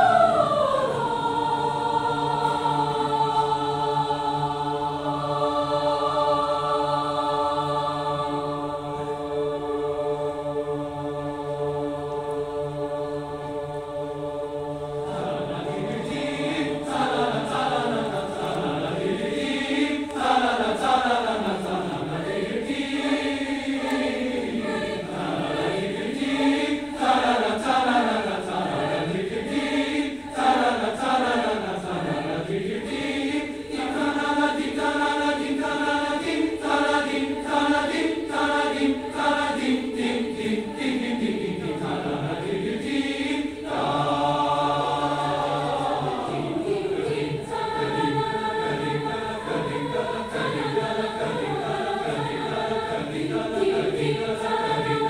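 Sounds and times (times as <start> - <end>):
choir singing: 0.0 - 55.0.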